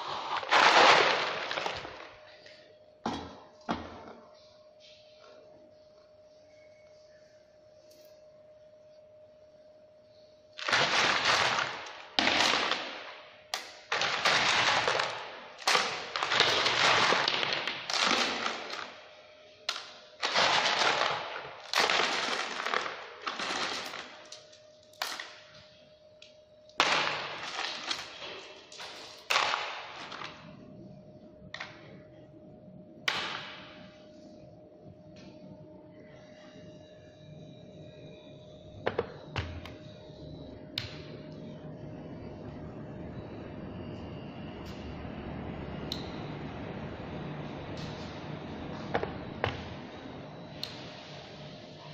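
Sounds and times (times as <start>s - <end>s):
pellets clattering into plastic crate: 0.0s - 2.2s, 10.6s - 13.1s, 13.9s - 19.0s, 19.7s - 24.4s, 26.8s - 30.4s.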